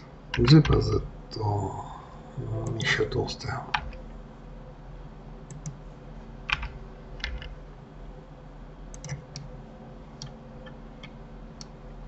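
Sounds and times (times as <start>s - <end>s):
low steady hum: 0.0s - 12.0s
keyboard and mouse clicks: 0.3s - 0.8s, 5.5s - 5.8s, 6.5s - 7.6s, 8.9s - 9.5s.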